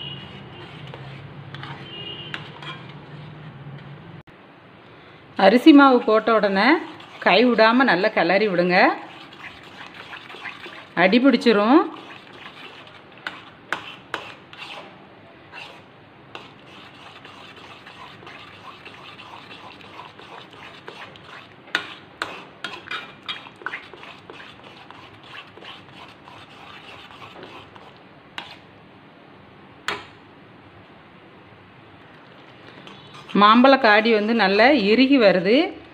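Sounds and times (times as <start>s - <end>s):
spoon scraping metal pan: 0.0s - 4.0s, 5.8s - 14.9s, 15.5s - 28.6s, 32.7s - 35.0s.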